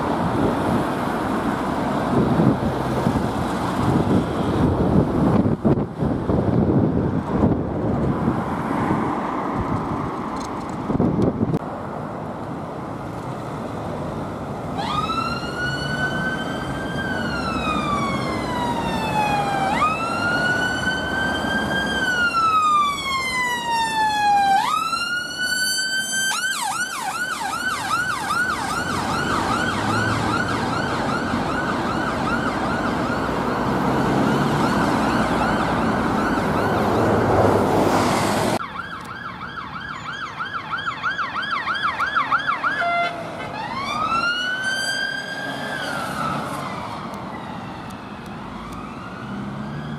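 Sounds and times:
passing traffic: 0.0 - 49.9
ambulance siren wail and yelp: 14.7 - 37.8, 38.6 - 49.9.

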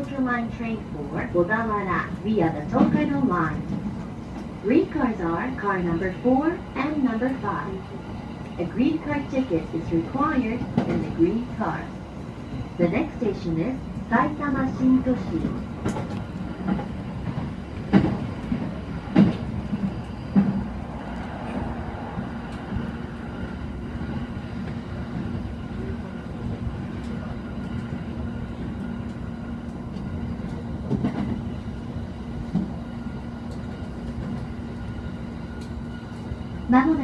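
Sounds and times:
train rumble and hum: 0.0 - 37.0.

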